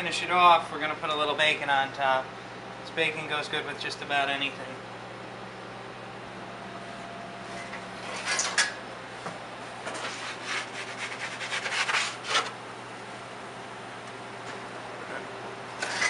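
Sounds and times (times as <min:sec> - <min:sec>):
pizza peel scraping oven deck: 0:07.5 - 0:08.8, 0:09.8 - 0:12.6, 0:15.8 - 0:16.0.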